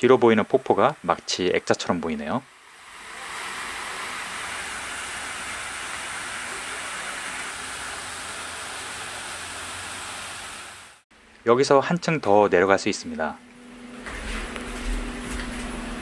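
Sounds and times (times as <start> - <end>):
water falling over stone steps: 2.8 - 11.0.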